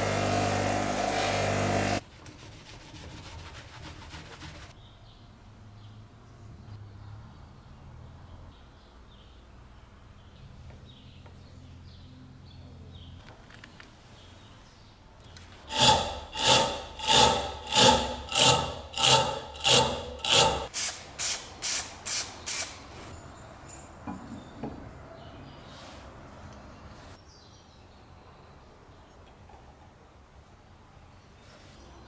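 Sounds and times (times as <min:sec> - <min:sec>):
hand tool rubbing on metal: 0:15.7 - 0:20.7.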